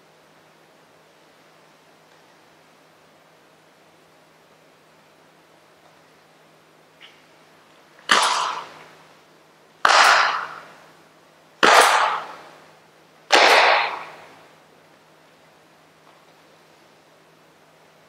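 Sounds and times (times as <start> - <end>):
loud bursts from forceful movements: 8.0 - 9.0, 9.8 - 10.9, 11.6 - 12.7, 13.3 - 14.5.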